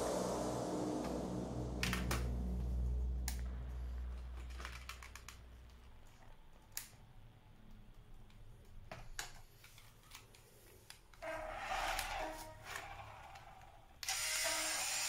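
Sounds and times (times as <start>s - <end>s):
louder steady sound: 0.0s - 5.8s.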